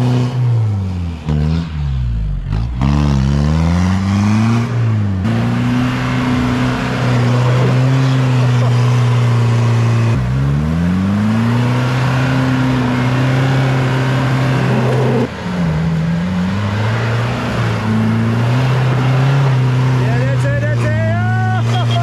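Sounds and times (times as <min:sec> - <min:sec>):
engine revving under load: 0:00.0 - 0:22.0.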